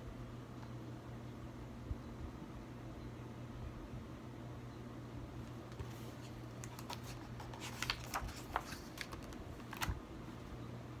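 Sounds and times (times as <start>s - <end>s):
low steady hum: 0.0s - 11.0s
book pages turning: 5.7s - 10.0s.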